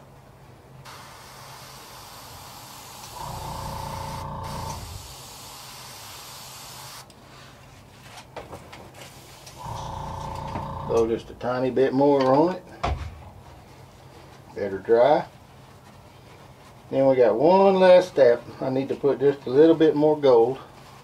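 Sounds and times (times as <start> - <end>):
airbrush spraying hiss: 0.9 - 7.1
loud hum with low rumble: 3.2 - 5.1, 9.6 - 11.9.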